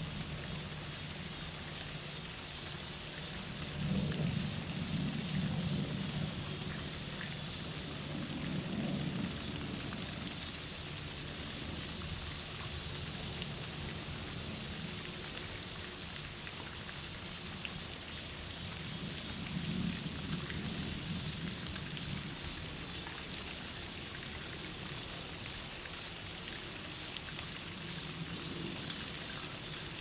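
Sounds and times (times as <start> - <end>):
high-pitched outdoor hiss: 0.0 - 30.0.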